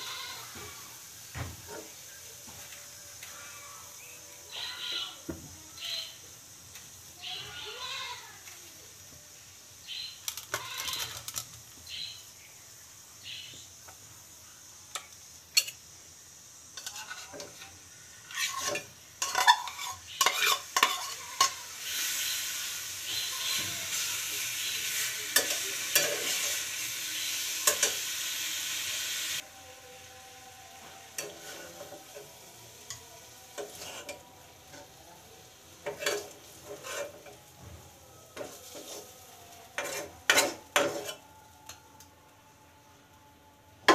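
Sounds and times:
food frying in a pan: 0:00.0 - 0:41.9
loud sizzle: 0:00.0 - 0:43.9
metal spoon scraping a pan: 0:10.3 - 0:11.5, 0:16.7 - 0:29.2, 0:31.1 - 0:35.0, 0:35.8 - 0:37.4, 0:38.4 - 0:41.8.

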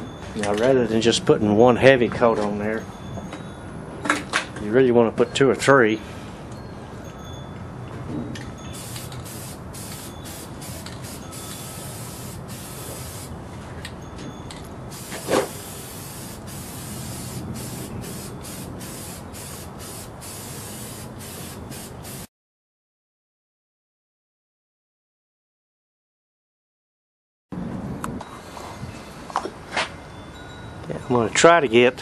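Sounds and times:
aerosol spray can hissing: 0:08.8 - 0:13.3, 0:14.9 - 0:22.3.

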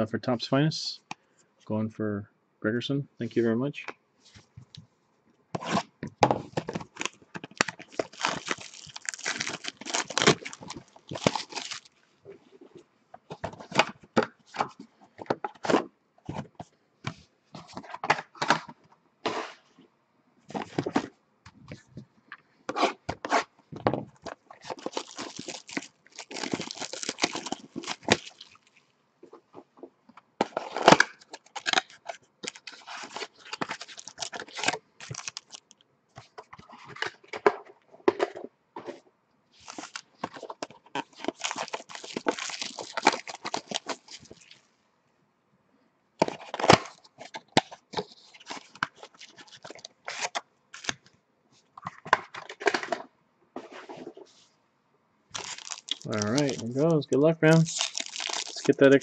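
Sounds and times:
foil packs tearing and crinkling: 0:06.7 - 0:11.9, 0:24.6 - 0:28.8, 0:30.6 - 0:35.7, 0:39.6 - 0:44.6, 0:46.4 - 0:51.0, 0:55.4 - 0:56.8, 0:57.5 - 0:59.0.

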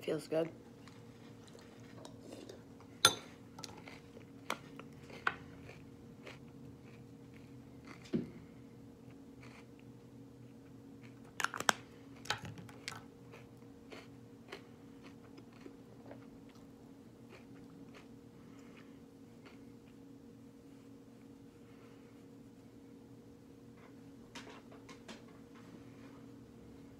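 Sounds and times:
faint steady hum: 0:00.0 - 0:26.9.

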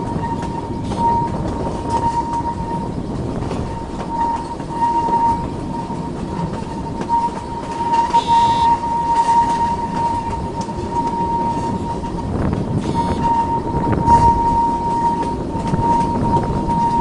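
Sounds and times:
high steady whine: 0:00.0 - 0:17.0
train wheels rumbling on track: 0:00.0 - 0:17.0
brief higher tone: 0:07.1 - 0:11.7, 0:12.8 - 0:17.0.

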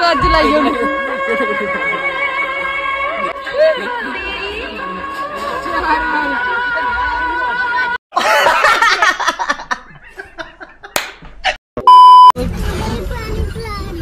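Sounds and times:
music: 0:00.0 - 0:08.0
man laughing loudly: 0:08.1 - 0:11.6
test-tone beep: 0:11.8 - 0:12.4.

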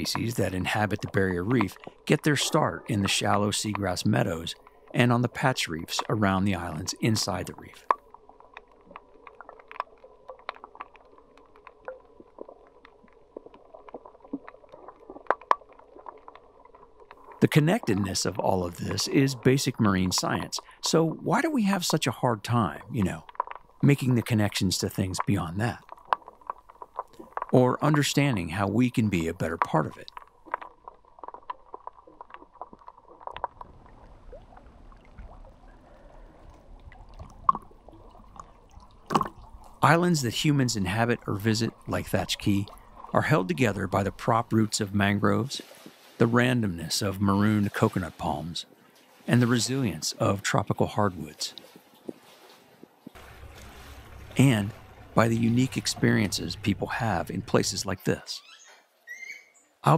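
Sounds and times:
underwater clicks and crackles: 0:00.0 - 0:58.2
muffled underwater rumble: 0:32.6 - 0:45.5, 0:53.2 - 0:58.0
faint steady hum: 0:53.2 - 0:58.2.

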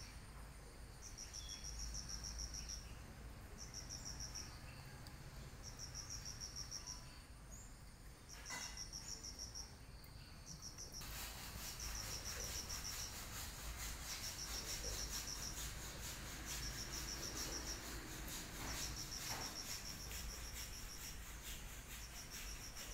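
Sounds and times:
insect chirping trill: 0:00.0 - 0:22.9
steady hiss: 0:05.3 - 0:22.9.

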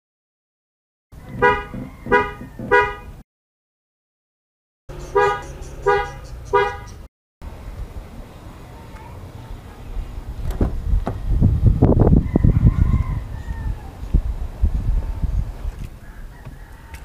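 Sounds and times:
car horn honks: 0:01.3 - 0:03.2, 0:05.0 - 0:07.1.

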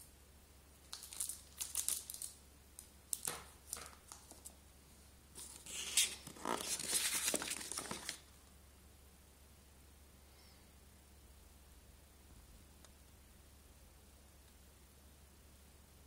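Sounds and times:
cardboard box rustling and scraping: 0:05.4 - 0:08.1
paper sheet rustling: 0:05.4 - 0:08.3.

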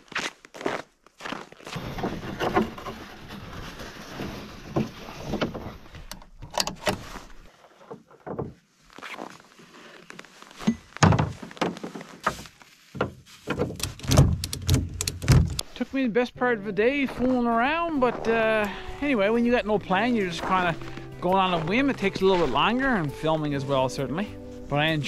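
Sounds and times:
strap handling knocks and rustles: 0:10.5 - 0:15.7.

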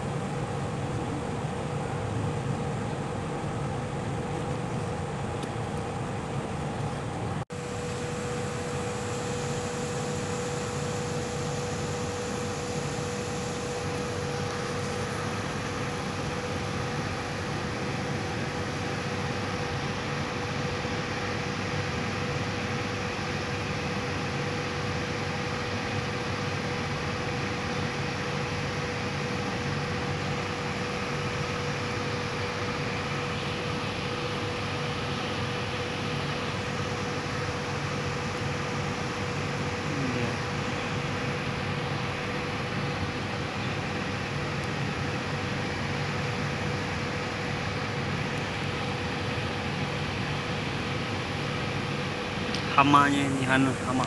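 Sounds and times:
mechanical hum: 0:00.0 - 0:54.0
constant hiss: 0:52.2 - 0:54.0.

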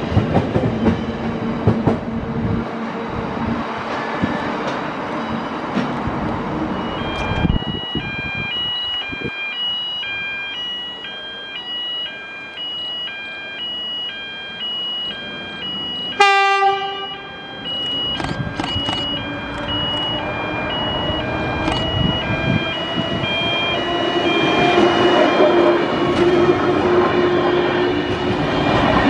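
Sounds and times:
train wheel noise: 0:00.0 - 0:09.4, 0:15.5 - 0:29.0
train motor whine: 0:00.1 - 0:09.4, 0:10.0 - 0:29.0
level crossing bell ringing: 0:06.8 - 0:26.1
train horn blast: 0:16.2 - 0:17.3.

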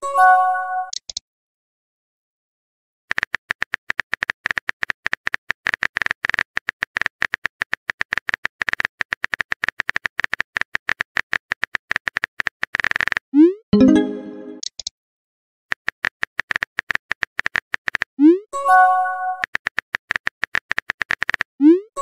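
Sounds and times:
keyboard typing clicks: 0:00.9 - 0:01.2.

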